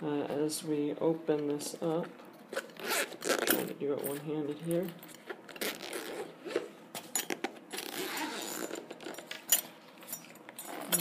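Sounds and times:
zipper rasping: 2.6 - 3.7, 5.5 - 6.8, 7.7 - 9.2, 10.6 - 11.0.

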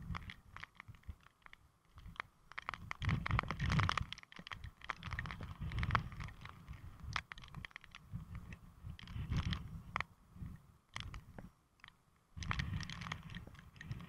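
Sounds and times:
sharp taps and crackles: 0.0 - 10.1, 10.9 - 14.0
wind buffeting microphone: 2.0 - 11.5.

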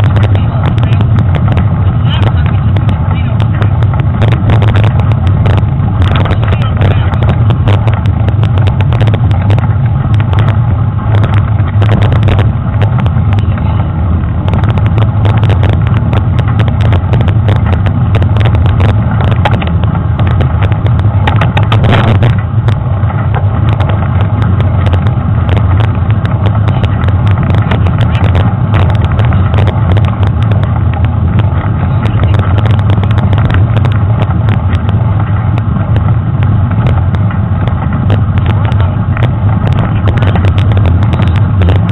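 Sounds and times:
low rumble of wind: 0.0 - 41.9.

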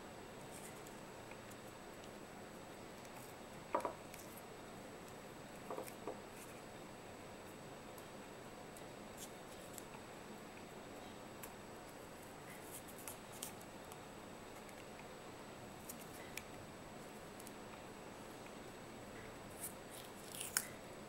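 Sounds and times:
tape handling ticks and crackles: 12.2 - 15.1.

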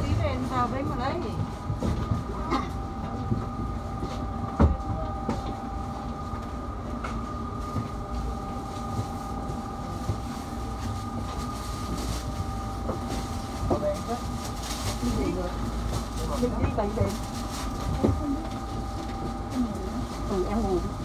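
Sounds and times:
tram equipment humming: 0.0 - 21.0.

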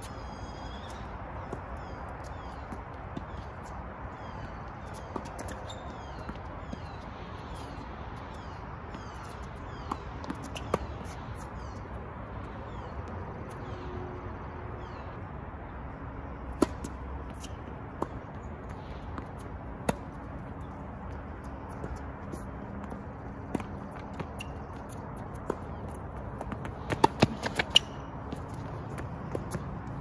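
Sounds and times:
birds chirping: 0.0 - 14.0
tennis ball bouncing: 8.9 - 11.5, 16.5 - 30.0.

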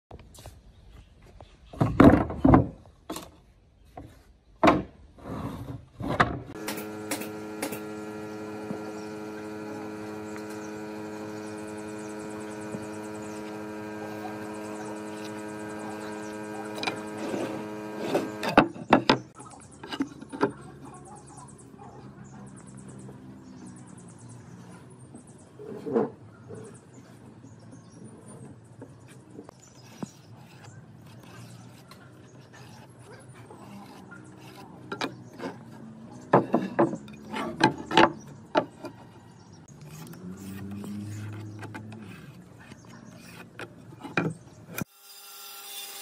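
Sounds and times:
steady electrical hum: 6.6 - 18.6.

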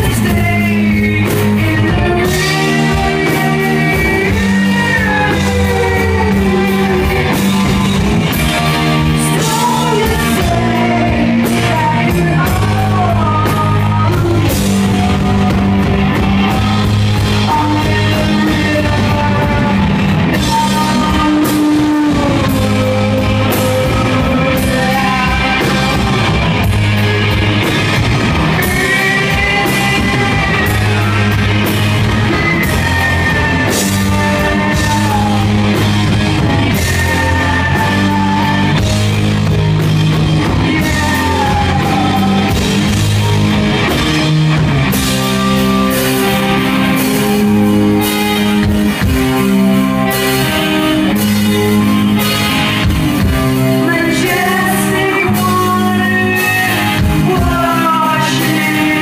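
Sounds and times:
woman singing: 0.0 - 26.7, 28.5 - 39.2, 40.4 - 43.0, 53.8 - 59.0
bass guitar: 0.0 - 59.0
drums and cymbals: 0.0 - 59.0
electric guitar: 0.0 - 59.0.

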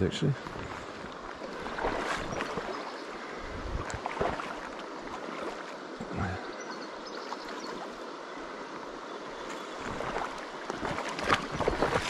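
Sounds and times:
river water flowing over stones: 0.0 - 12.0.

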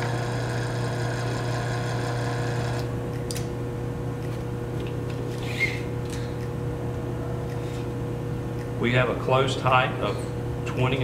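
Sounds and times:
electric actuator motor running: 0.0 - 3.0.

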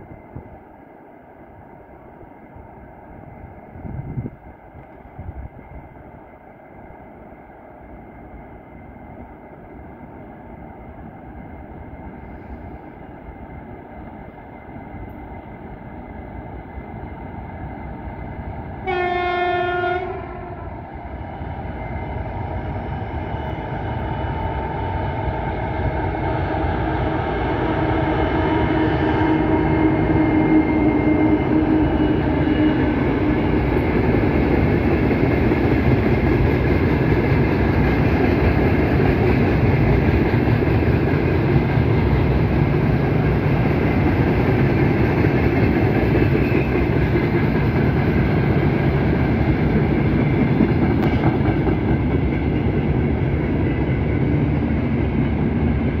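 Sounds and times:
diesel locomotive engines: 0.0 - 56.0
locomotive horn blast: 18.8 - 20.7.

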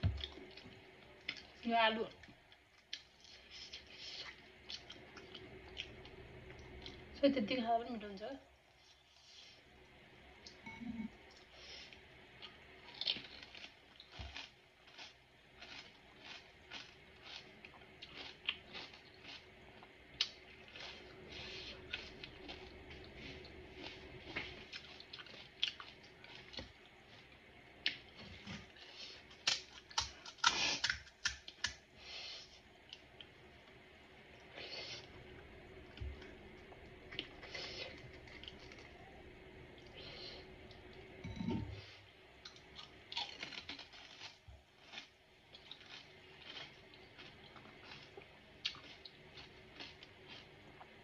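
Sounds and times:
crisp shells crunching: 43.1 - 48.1.

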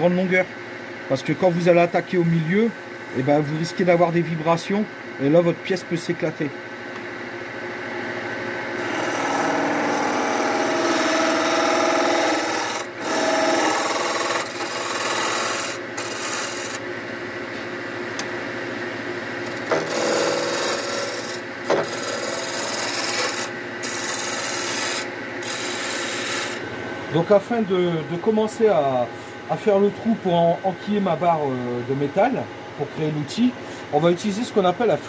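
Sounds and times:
lathe motor hum: 8.8 - 16.8, 19.4 - 27.3
turning tool cutting wood: 8.8 - 16.8, 19.4 - 26.6.

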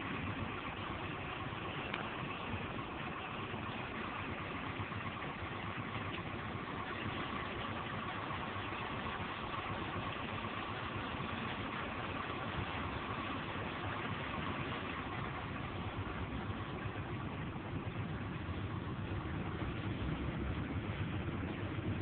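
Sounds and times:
constant mid-range hum: 0.0 - 22.0
vehicle engine and road noise: 0.0 - 22.0.

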